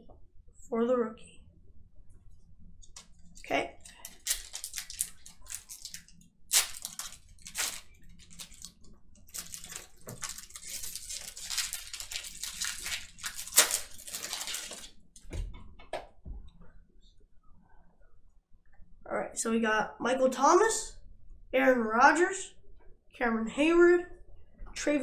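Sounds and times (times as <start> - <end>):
card pack wrapper crinkling: 3.8 - 15.0
wrapper snap: 3.9 - 14.9.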